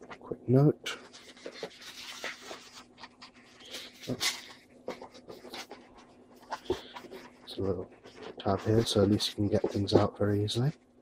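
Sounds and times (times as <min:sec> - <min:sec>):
cardboard box and paper rustling: 0:01.0 - 0:10.7.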